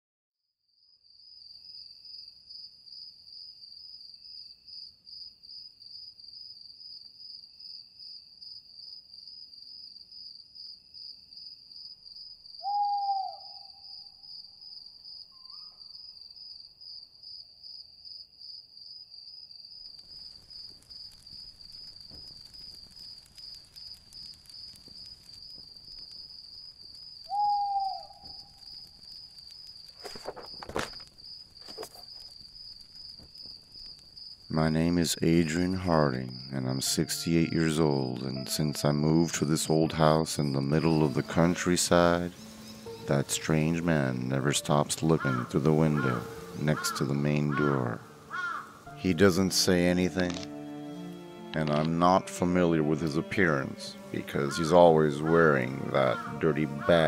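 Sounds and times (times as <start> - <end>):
crickets chirping: 0.9 - 57.0
owl hooting: 12.6 - 14.1, 27.3 - 28.5, 40.5 - 49.0, 52.9 - 57.0
faint hiss: 19.9 - 57.0.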